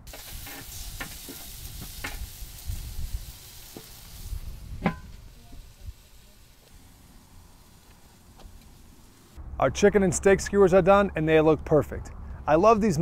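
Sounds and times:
meat sizzling on grill: 0.0s - 9.4s.

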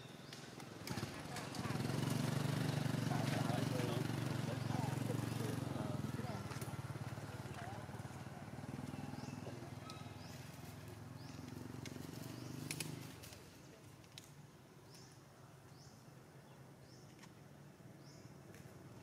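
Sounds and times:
sharp clicks: 12.6s - 13.4s.

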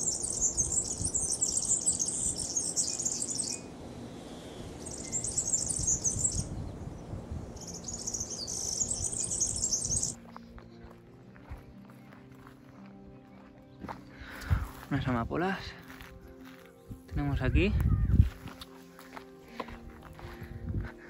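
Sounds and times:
bird singing fast jingling song: 0.0s - 10.4s.

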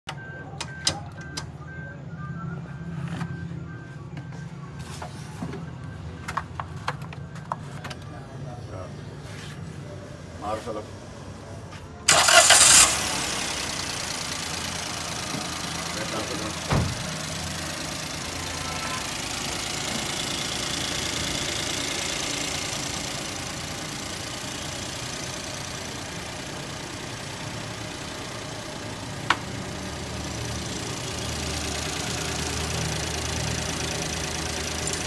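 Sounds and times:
car engine idling: 12.1s - 35.0s.

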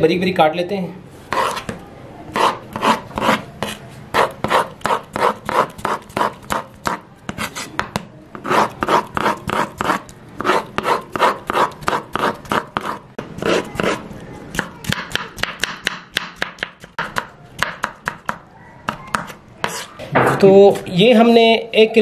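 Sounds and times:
knife chopping on wooden board: 2.4s - 19.8s.

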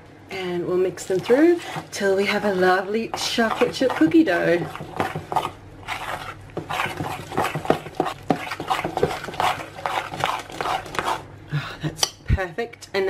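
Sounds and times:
fork scraping glass bowl: 1.1s - 11.2s.

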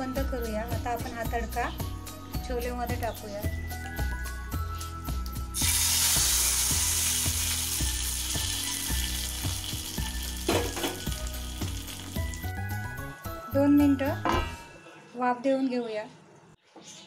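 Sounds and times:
background music with beat: 3.4s - 13.4s
hot oil sizzling: 5.6s - 13.2s.

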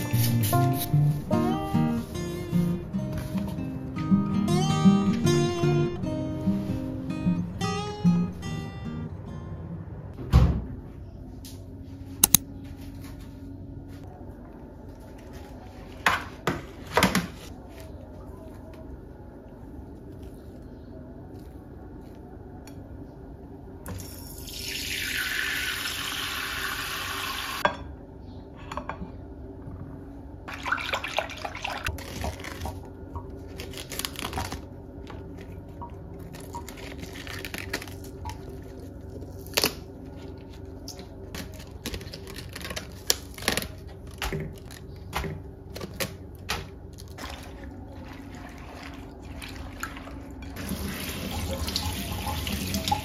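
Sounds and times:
lettuce leaves crackling: 31.9s - 49.6s
leaves splashing in water: 46.5s - 53.0s
kitchen tap running: 47.2s - 53.0s.

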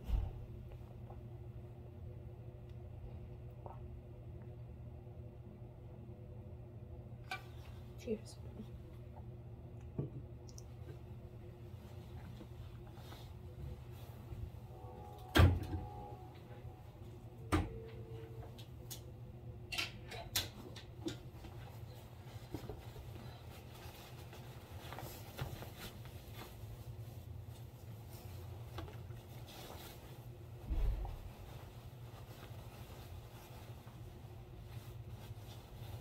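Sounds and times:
low hum: 0.0s - 36.0s
soft rustling: 10.7s - 14.7s, 21.2s - 36.0s.

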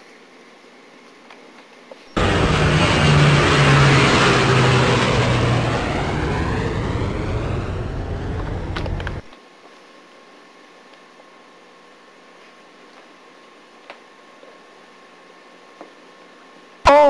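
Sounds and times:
vehicle engine passing by: 2.2s - 9.3s.

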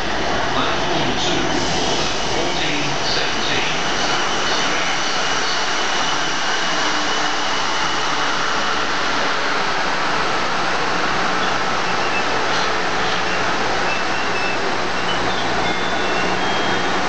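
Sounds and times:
train diesel engines droning: 0.0s - 17.0s.

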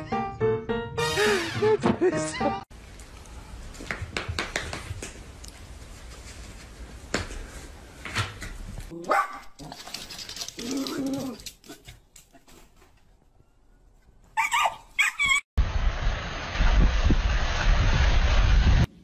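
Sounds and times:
dog barking: 9.1s - 9.5s, 14.4s - 15.3s.

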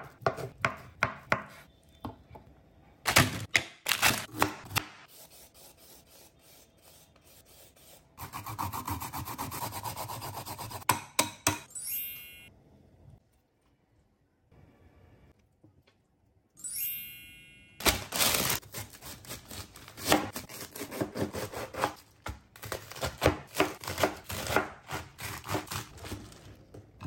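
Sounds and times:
knife chopping on wooden board: 0.0s - 1.6s, 20.0s - 25.8s
rising chime sound effect: 11.7s - 12.6s, 16.6s - 17.8s.

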